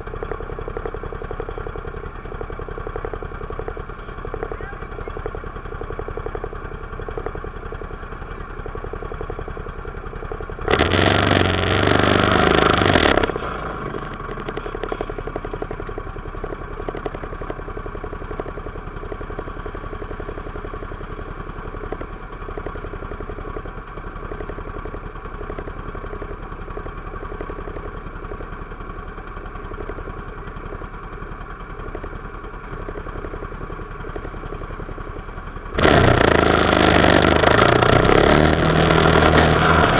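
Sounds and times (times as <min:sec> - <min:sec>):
engine idling: 0:00.0 - 0:39.9
loud rush of noise: 0:35.8 - 0:39.9.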